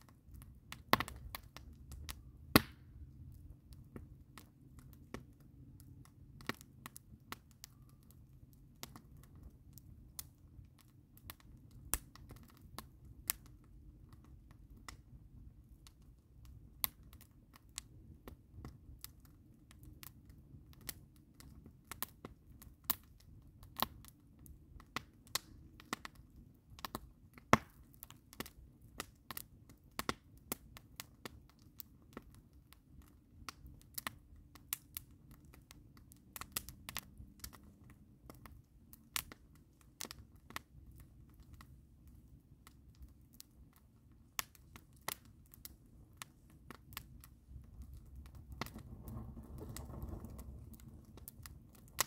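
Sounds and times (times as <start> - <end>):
campfire crackling and popping: 0.0 - 52.0
low steady rumble: 40.8 - 52.0.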